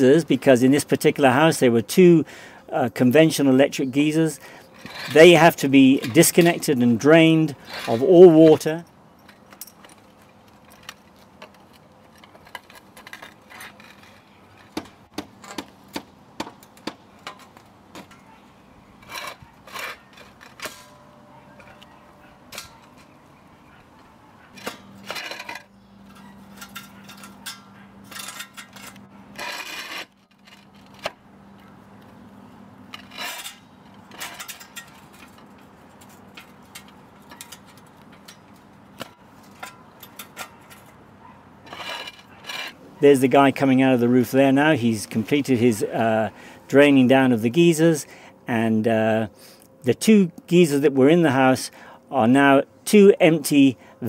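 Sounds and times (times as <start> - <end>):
roof tiles and metal clinking: 0.0 - 54.0
faint steady hum: 43.8 - 54.0.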